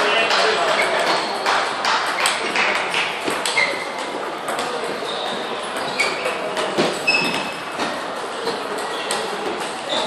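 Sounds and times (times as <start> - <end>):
background chatter: 0.0 - 10.0
table tennis balls clicking: 0.2 - 7.5
shoes squeaking on floor: 0.7 - 1.5, 3.4 - 10.0.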